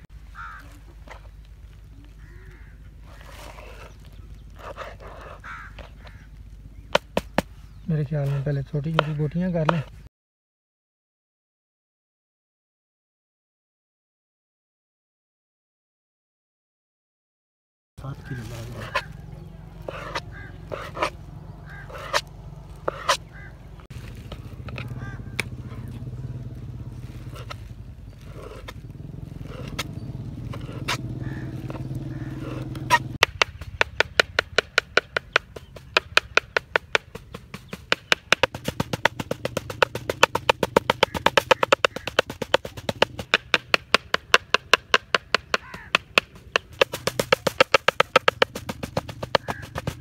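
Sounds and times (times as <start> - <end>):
knife chopping on cutting board: 19.9 - 21.1, 21.8 - 23.2.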